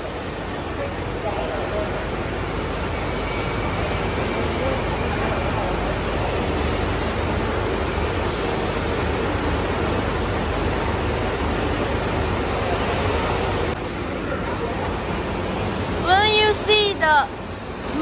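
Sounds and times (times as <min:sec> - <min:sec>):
faint high whine: 0:00.0 - 0:18.0
furnace mechanical noise: 0:00.0 - 0:18.0.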